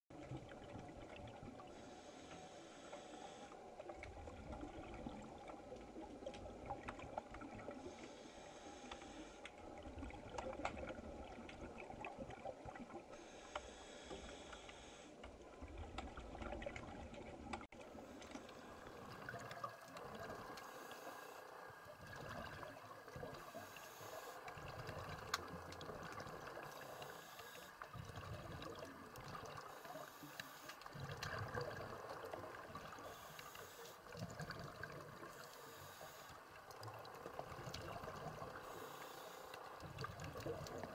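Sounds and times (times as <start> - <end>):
scuba regulator breathing: 1.7 - 3.7, 7.8 - 9.6, 13.1 - 15.2, 20.0 - 21.9, 22.5 - 25.2, 26.0 - 28.0, 29.5 - 31.0, 32.8 - 34.2, 35.2 - 36.6, 38.4 - 39.8
exhaled bubbles burbling: 3.9 - 7.9, 9.6 - 13.1, 15.4 - 33.3, 34.0 - 35.5, 36.1 - 38.8, 39.6 - 40.9
faint clicks: 8.8 - 9.6, 17.4 - 21.8, 23.1 - 31.8, 32.4 - 40.9.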